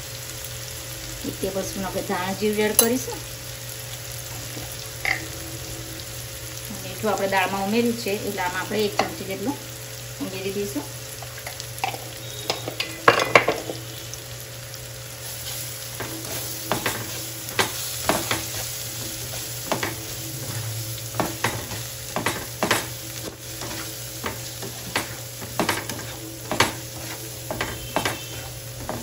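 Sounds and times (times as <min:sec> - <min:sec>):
masala sizzling in oil: 0:00.0 - 0:29.0
spatula scraping a pan: 0:15.3 - 0:29.0.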